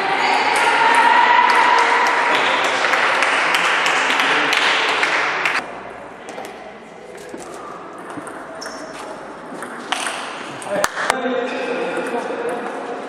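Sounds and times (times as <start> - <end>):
raised voices: 0.0 - 5.6
crowd clapping: 0.5 - 5.6.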